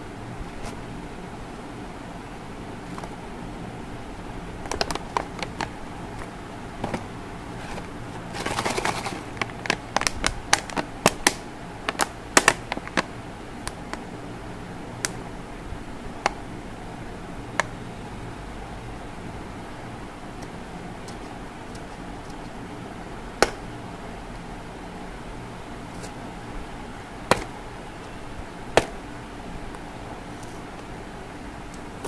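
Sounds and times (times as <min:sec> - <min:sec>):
packaging clicking and crackling: 0:04.6 - 0:13.1
packaging rustle: 0:04.7 - 0:10.9.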